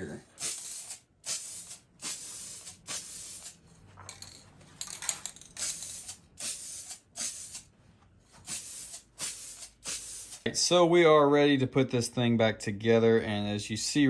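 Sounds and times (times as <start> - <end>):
aerosol spray can hissing: 0.4 - 3.6, 5.6 - 7.7, 8.5 - 10.5.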